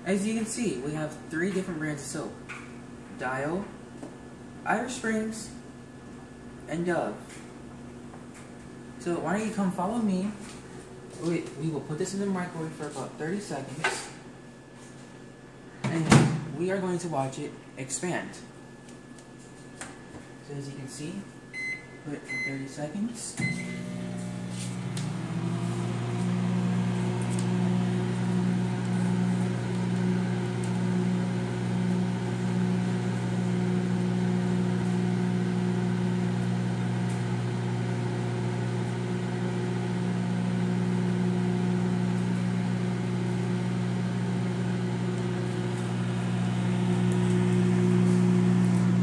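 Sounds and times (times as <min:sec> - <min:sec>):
microwave oven humming: 0:20.1 - 0:49.0.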